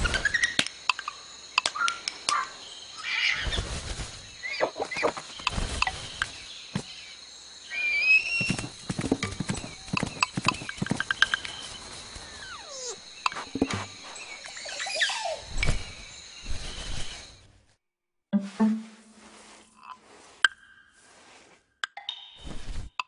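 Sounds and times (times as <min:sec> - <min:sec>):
hooves clip-clopping: 0:08.4 - 0:12.0.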